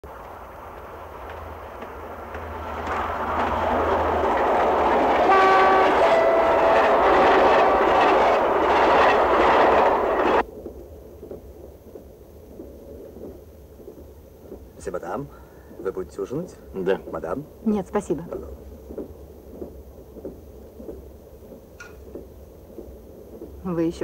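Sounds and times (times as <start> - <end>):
train wheels clattering: 0.0 - 24.0
muffled rumble inside carriage: 0.1 - 8.5, 9.5 - 24.0
train horn chord: 5.2 - 8.1.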